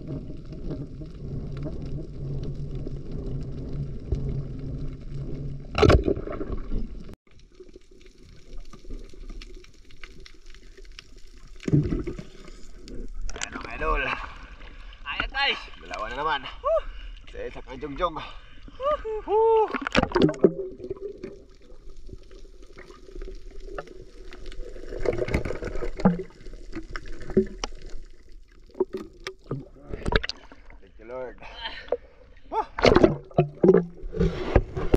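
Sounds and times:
faint clicks and crackles: 0:00.0 - 0:16.2, 0:19.8 - 0:30.8
muffled underwater rush: 0:00.0 - 0:34.9.

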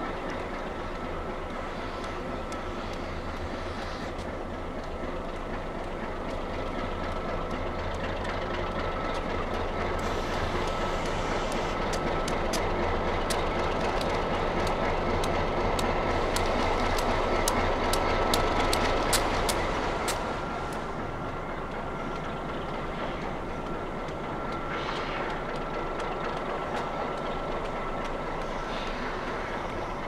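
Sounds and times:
diesel locomotive running: 0:00.0 - 0:30.0
wheels clicking over rail joints: 0:00.0 - 0:30.0
faint high whine: 0:19.6 - 0:30.0.

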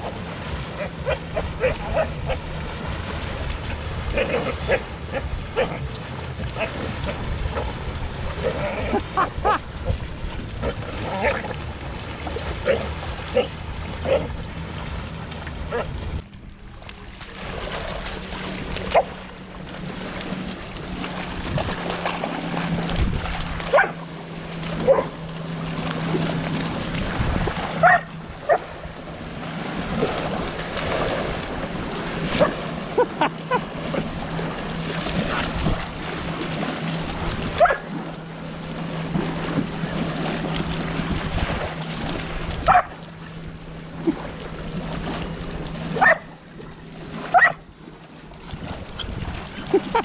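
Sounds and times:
dog yipping: 0:27.8 - 0:28.6, 0:42.7 - 0:42.9, 0:46.0 - 0:46.3, 0:47.3 - 0:47.6.

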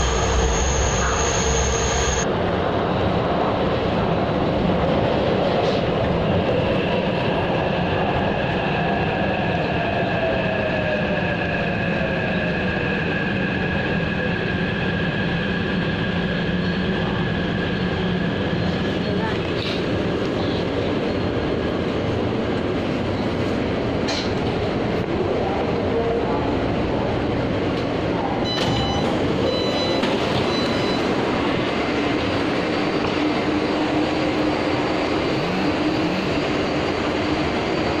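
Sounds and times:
metro train rumbling on track: 0:00.0 - 0:38.0
short high beeps: 0:28.5 - 0:31.1.

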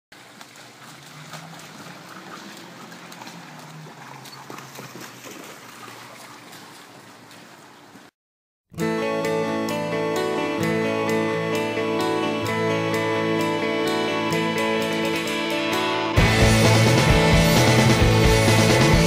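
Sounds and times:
wet clicks and splashes: 0:00.2 - 0:07.6.

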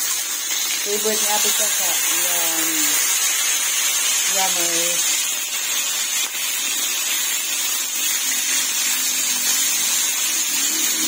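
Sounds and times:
fish frying in oil: 0:00.0 - 0:11.0.

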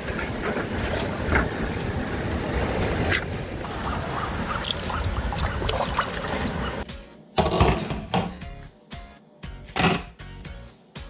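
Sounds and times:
surf rumbling: 0:00.0 - 0:06.8.

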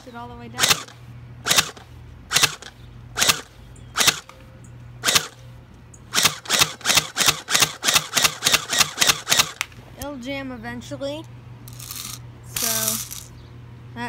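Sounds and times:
airsoft rifle shots: 0:00.6 - 0:04.3, 0:05.0 - 0:05.4, 0:06.1 - 0:09.7.

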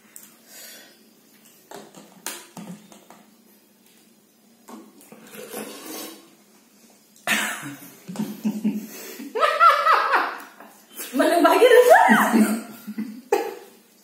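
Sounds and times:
plastic bottles knocking on plates: 0:01.7 - 0:03.3.

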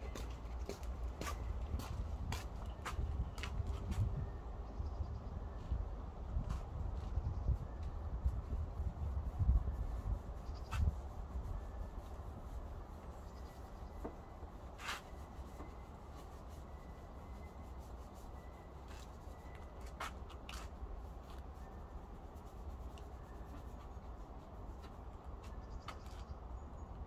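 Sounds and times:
brush rubbing on wood: 0:08.4 - 0:26.3.

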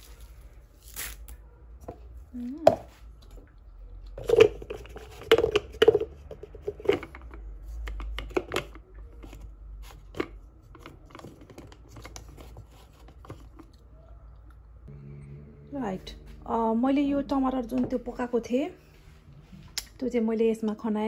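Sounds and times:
plastic parts clicking and scraping: 0:04.1 - 0:13.8.

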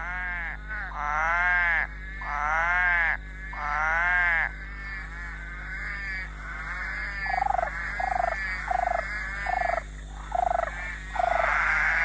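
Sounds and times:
frog chorus: 0:00.0 - 0:12.0
low pulsing frog call: 0:00.0 - 0:12.0.

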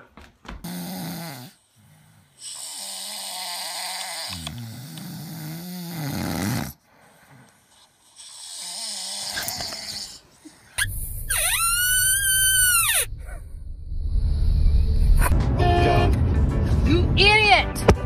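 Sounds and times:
person snoring loudly: 0:00.6 - 0:06.8, 0:08.1 - 0:10.2.

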